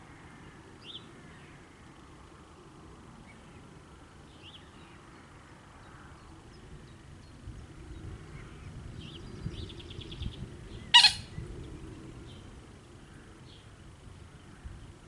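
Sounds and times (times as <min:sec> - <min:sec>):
birds chirping and trilling: 0:08.4 - 0:12.5
harsh bird call: 0:10.9 - 0:11.3.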